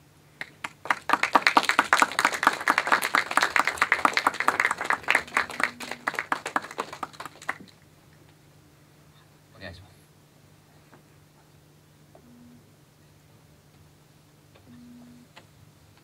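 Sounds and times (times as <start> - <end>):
audience applauding: 0.4 - 7.8.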